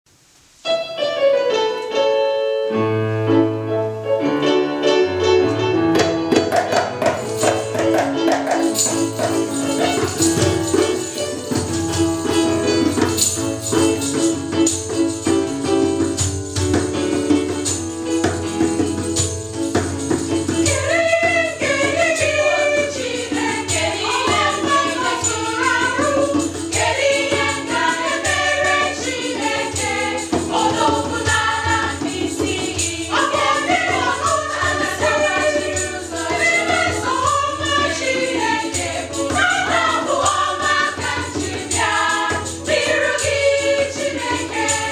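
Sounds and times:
hand drum: 5.8 - 44.9
jingling percussion: 6.0 - 44.9
church choir singing a hymn: 20.6 - 44.9.

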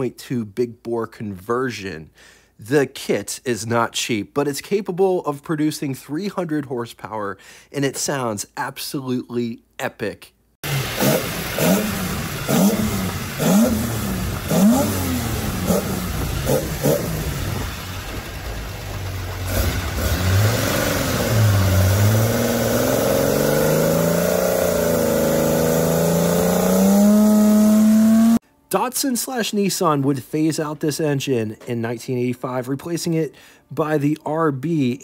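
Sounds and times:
car engine revving: 10.6 - 28.4.

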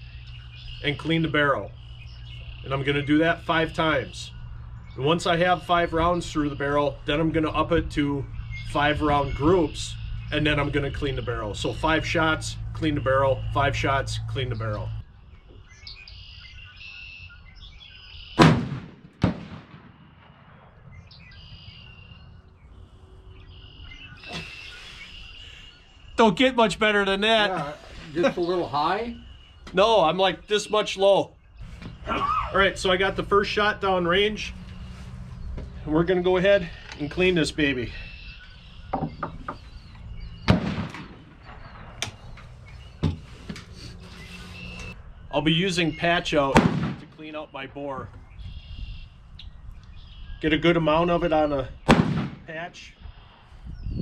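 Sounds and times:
birds chirping faintly: 0.0 - 18.5, 20.2 - 54.0
sharp crack: 18.4 - 20.9, 40.4 - 42.6, 46.4 - 47.3, 51.8 - 52.8
rifle shot with echo: 18.4 - 21.0, 40.5 - 42.3, 46.5 - 47.2, 51.9 - 52.6.

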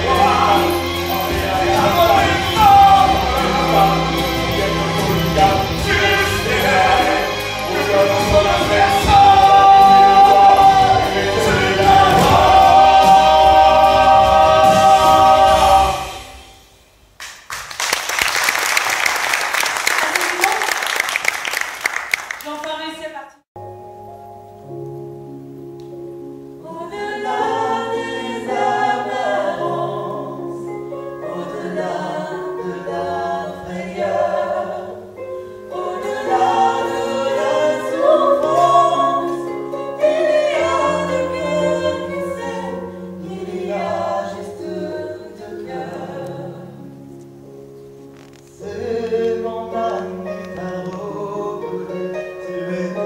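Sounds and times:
choir singing: 0.0 - 16.7, 26.6 - 47.1, 48.5 - 53.0
sustained instrumental chords: 0.0 - 17.0.

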